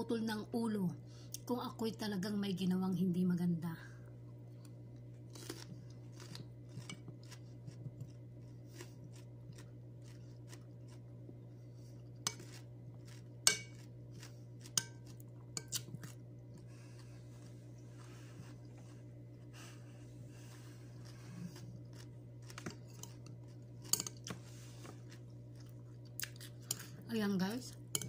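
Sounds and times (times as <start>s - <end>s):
steady low hum: 0.0s - 28.0s
crunchy chewing: 4.6s - 27.0s.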